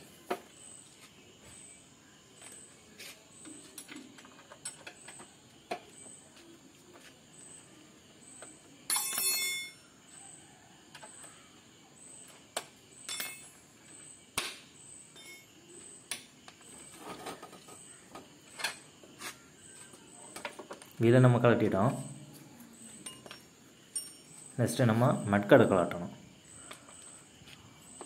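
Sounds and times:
bright metallic ring: 8.9 - 9.8, 13.0 - 13.6, 15.1 - 15.6, 23.0 - 24.6
metal hand tools clinking: 8.9 - 9.8, 13.0 - 13.5, 23.0 - 24.5.

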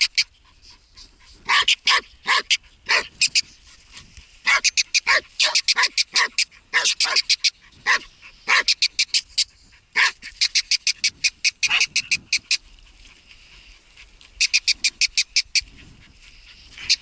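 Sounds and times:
dog barking excitedly: 1.4 - 3.2, 4.4 - 8.8, 9.9 - 10.3.

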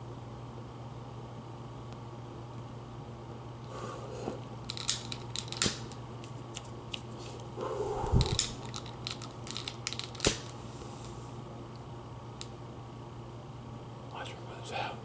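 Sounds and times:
lighter clicking: 8.2 - 8.8.

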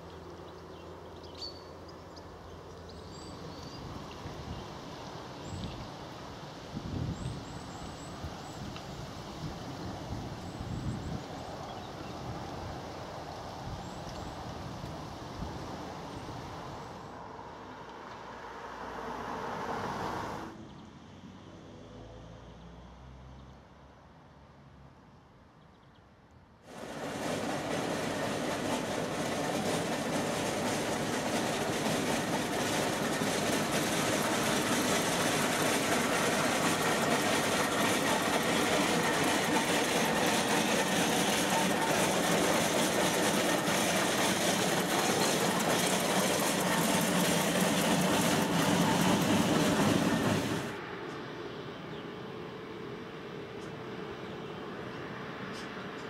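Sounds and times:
steam traction engine clattering: 26.7 - 50.8.

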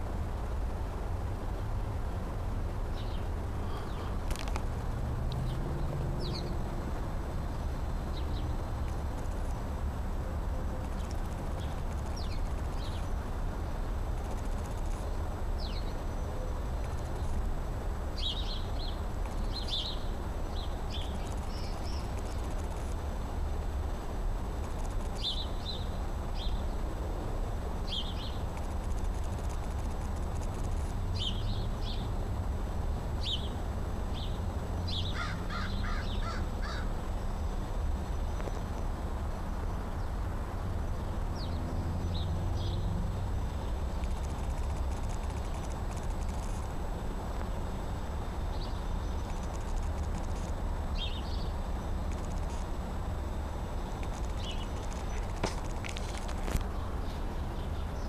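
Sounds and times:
low background rumble: 0.0 - 58.0
crows cawing: 35.1 - 36.9.

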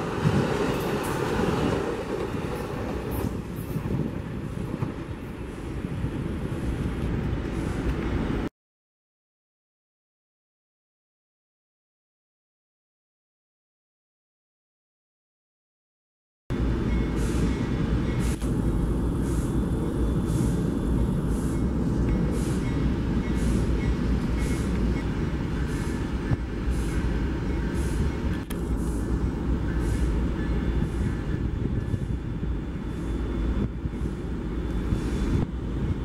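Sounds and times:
diesel locomotives idling: 16.5 - 36.0.

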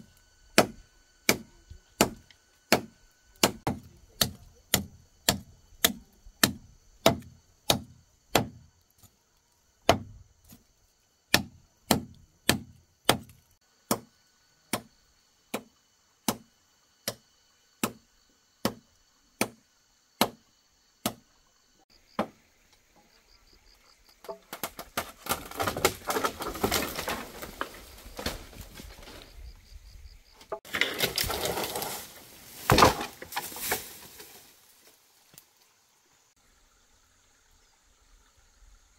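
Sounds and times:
tool striking wood: 0.6 - 8.6
rough rustling and scraping: 24.4 - 35.7.

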